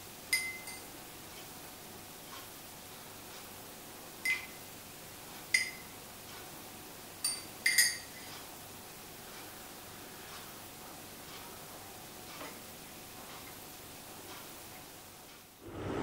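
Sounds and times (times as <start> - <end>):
teaspoon clinking ceramic mug: 0.3 - 0.9, 7.2 - 8.2.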